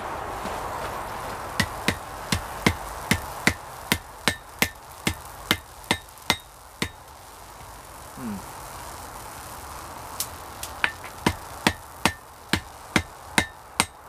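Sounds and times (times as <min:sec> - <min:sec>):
hammer striking steel on anvil: 0:01.6 - 0:07.0, 0:12.0 - 0:14.0.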